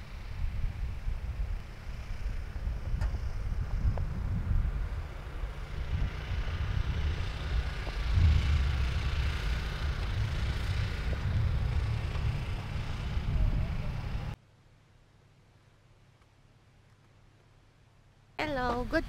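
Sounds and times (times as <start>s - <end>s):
wind buffeting microphone: 0.2s - 14.4s.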